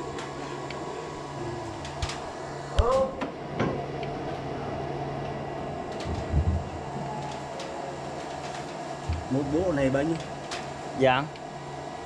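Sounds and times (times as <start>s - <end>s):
steady low hum: 0.0s - 12.0s
short vocal sound: 1.4s - 1.8s.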